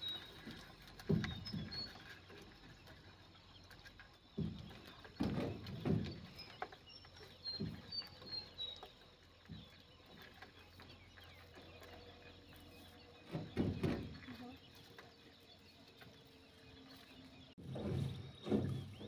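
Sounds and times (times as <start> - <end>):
faint high bird chirps: 0.0 - 19.0
knocks and thuds of traps: 4.4 - 6.6, 13.2 - 14.4, 17.6 - 19.0.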